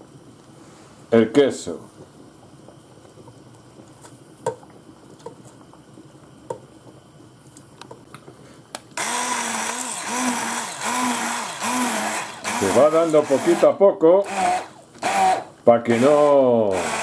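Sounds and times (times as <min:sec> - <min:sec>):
stick blender running: 0:09.0 - 0:17.0.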